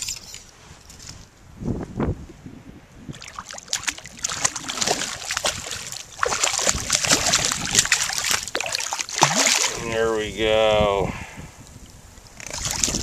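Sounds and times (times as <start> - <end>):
fish splashing at water surface: 3.1 - 9.9.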